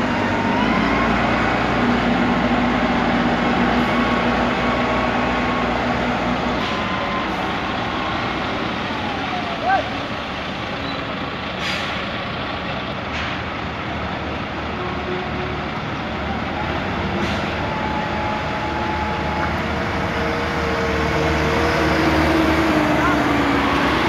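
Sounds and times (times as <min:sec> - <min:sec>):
skid-steer loader driving: 0:00.0 - 0:24.0
tractor unit diesel engine idling: 0:06.7 - 0:14.6
short air hisses: 0:11.6 - 0:12.1.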